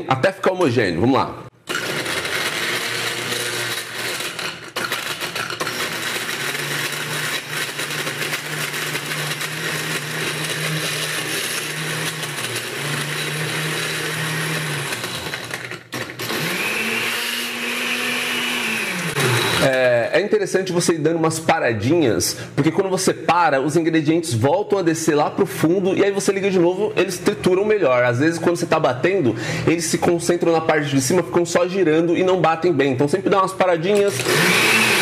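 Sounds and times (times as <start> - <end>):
blender crushing ice: 1.6 - 19.9, 33.9 - 35.0.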